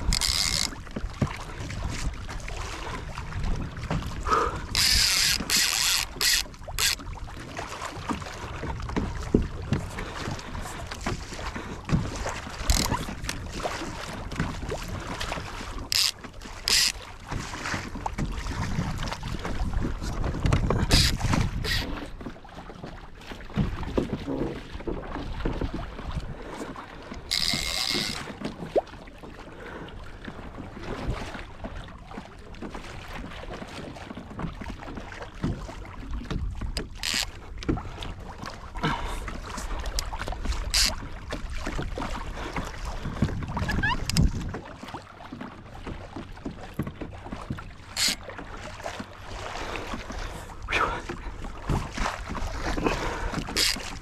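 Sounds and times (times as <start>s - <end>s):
wind on microphone: 0.0s - 7.0s, 18.2s - 22.2s, 41.5s - 44.6s
water splashing on kayak hull: 0.0s - 54.0s.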